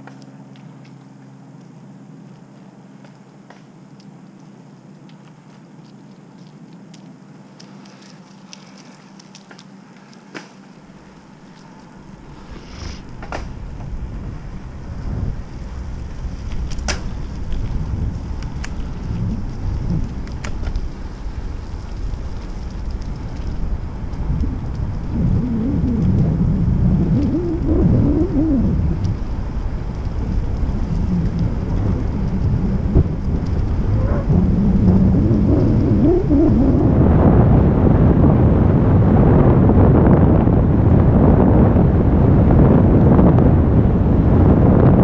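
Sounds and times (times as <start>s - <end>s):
leaves crackling: 0.0s - 38.2s
bicycle tyres rolling on pavement: 0.0s - 45.0s
wind buffeting microphone: 10.8s - 45.0s
wavering pitched sound: 24.4s - 29.2s, 31.1s - 37.1s.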